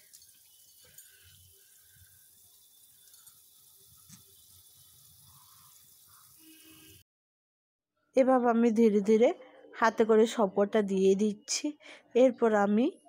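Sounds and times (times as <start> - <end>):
gravy bubbling in a pan: 0.0 - 7.0.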